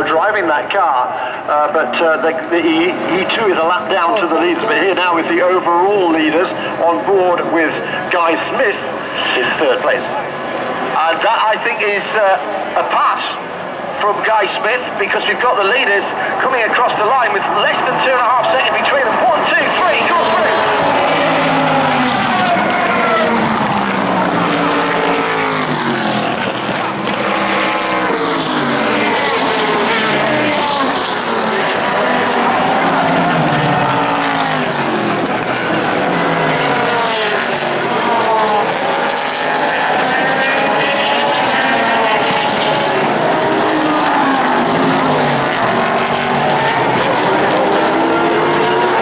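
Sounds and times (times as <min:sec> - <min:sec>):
race car engines passing by: 0:00.0 - 0:49.0.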